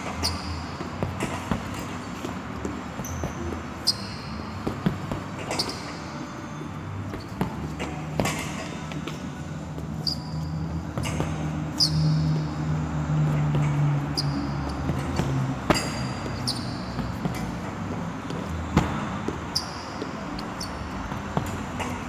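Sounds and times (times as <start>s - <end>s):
punches thudding on heavy bag: 18.7s - 19.4s.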